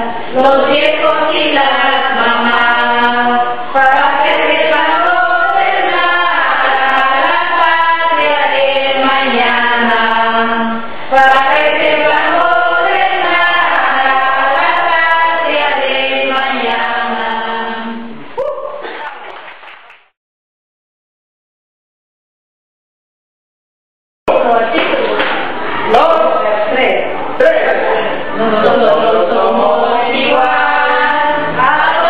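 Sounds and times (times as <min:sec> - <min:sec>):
choir singing slow chant: 0:00.0 - 0:18.4, 0:27.4 - 0:32.0.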